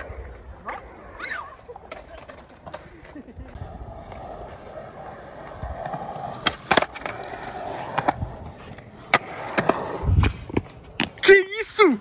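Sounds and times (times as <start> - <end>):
skateboard wheels rolling on concrete: 0.0 - 12.0
skateboard clacks: 5.3 - 11.2.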